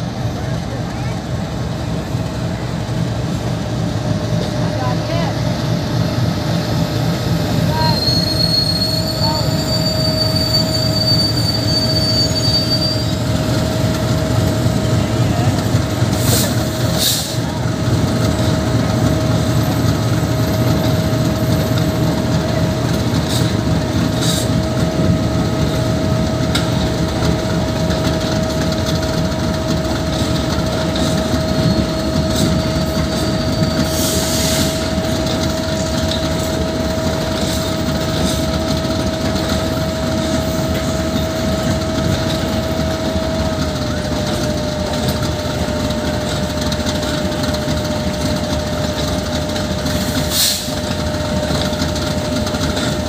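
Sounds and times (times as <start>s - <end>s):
train wheels clattering over rail joints: 12.7s - 53.0s.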